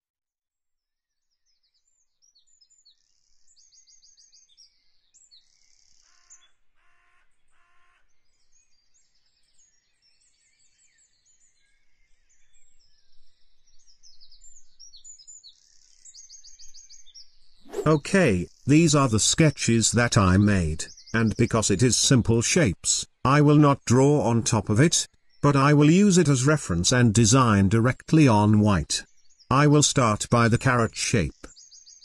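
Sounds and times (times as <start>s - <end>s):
small birds chirping trills: 8.3s - 24.4s, 27.5s - 32.0s.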